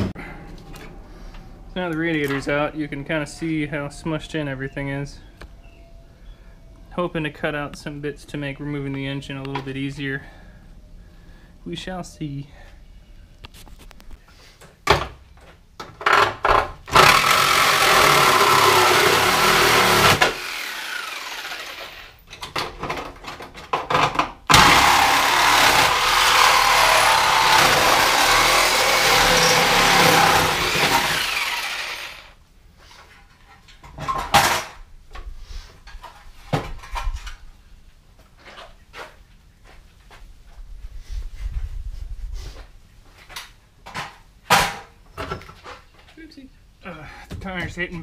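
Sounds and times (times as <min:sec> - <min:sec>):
reciprocating saw cutting sheet metal: 0:16.9 - 0:22.2, 0:24.5 - 0:32.4.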